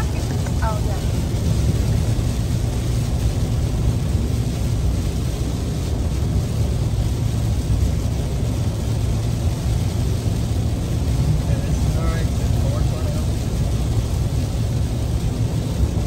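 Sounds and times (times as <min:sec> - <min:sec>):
low road rumble: 0:00.0 - 0:16.0
rain on car: 0:00.0 - 0:16.0
tyres on wet road: 0:00.0 - 0:16.0.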